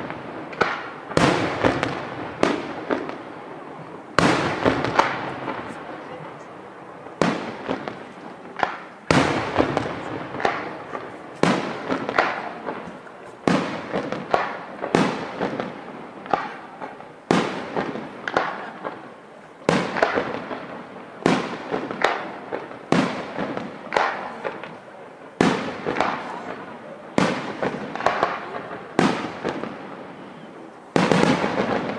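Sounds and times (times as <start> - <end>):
firework shells bursting: 0.0 - 6.2, 7.0 - 19.1
rumble and echo of bangs: 4.2 - 5.8.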